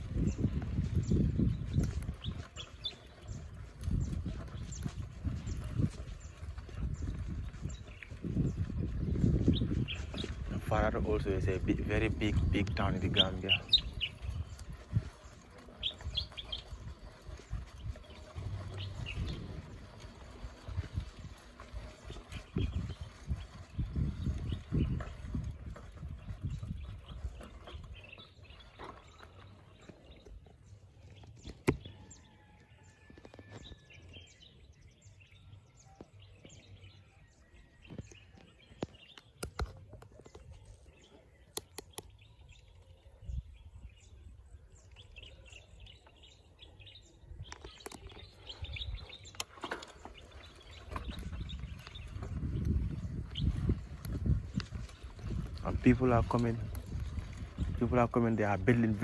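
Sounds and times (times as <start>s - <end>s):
bird chirps: 12.5s - 19.5s, 26.4s - 56.9s.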